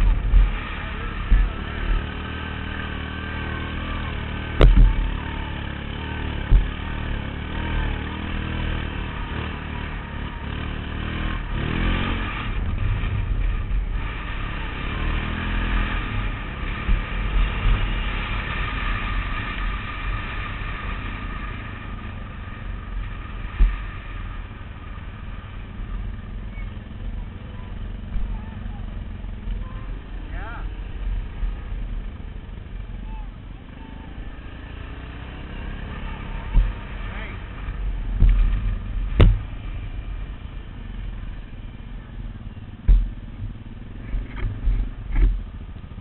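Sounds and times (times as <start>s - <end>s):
quad bike engine revving: 0.0s - 46.0s
sharp thumps and knocks: 4.6s - 5.0s, 38.1s - 39.5s, 42.8s - 43.2s.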